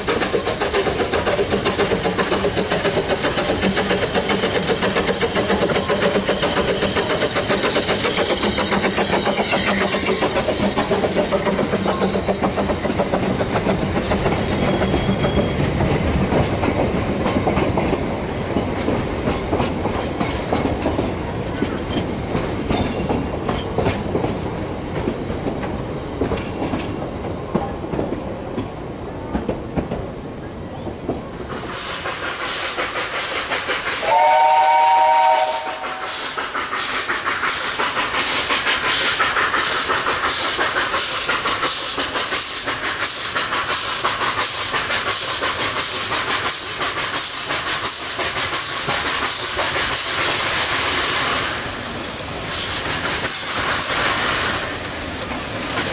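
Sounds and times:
steam locomotive exhaust chuffs: 0.0s - 27.0s, 31.4s - 55.9s
steam locomotive whistle: 34.0s - 36.3s.

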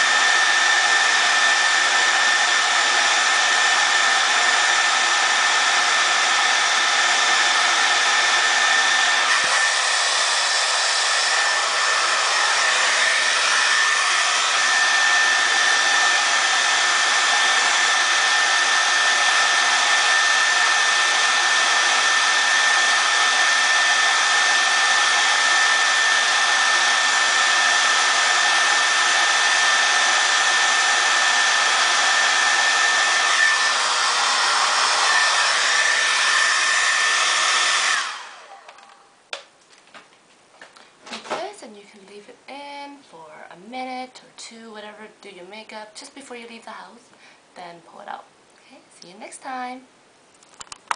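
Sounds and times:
hair dryer running: 0.0s - 39.0s.

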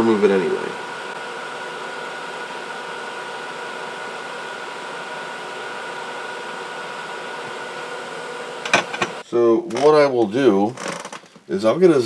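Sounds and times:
extractor fan hissing: 0.0s - 9.2s
faint fan whine: 0.0s - 12.0s.

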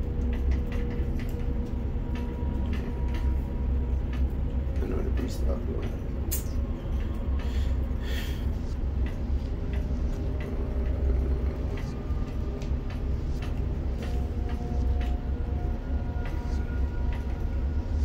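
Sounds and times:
crane machinery rumble: 0.0s - 18.0s.

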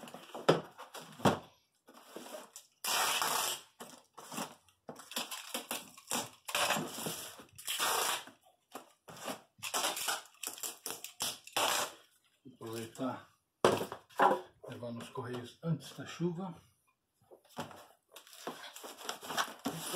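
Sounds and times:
packing tape pulled off roll: 2.6s - 3.7s, 4.3s - 8.4s, 9.6s - 12.0s.

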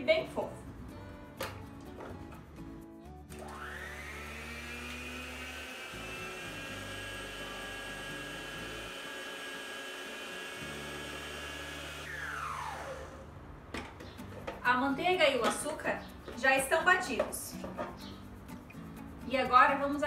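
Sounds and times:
electric stand mixer whine: 3.3s - 13.3s.

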